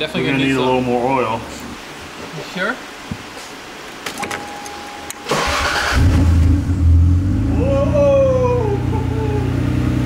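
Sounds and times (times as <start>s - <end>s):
engine starter cranking: 5.3s - 6.5s.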